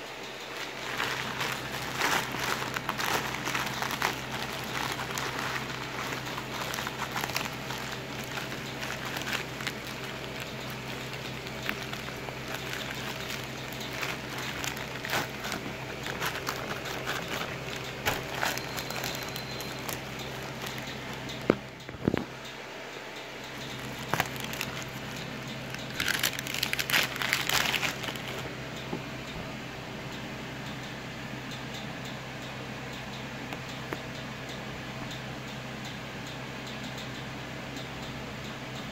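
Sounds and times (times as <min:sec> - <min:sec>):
steady low hum: 0:00.0 - 0:38.9
plastic mailer bag crinkling: 0:00.4 - 0:21.6, 0:23.6 - 0:28.5.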